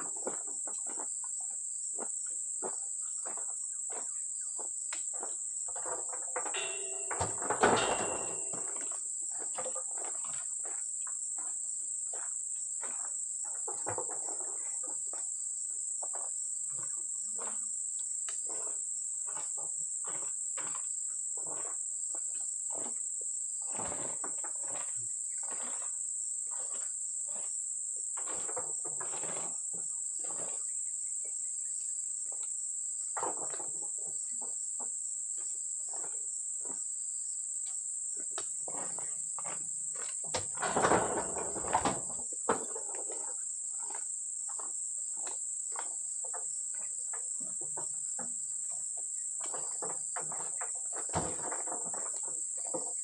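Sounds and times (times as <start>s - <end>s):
high-pitched insect chorus: 2.6s - 20.2s.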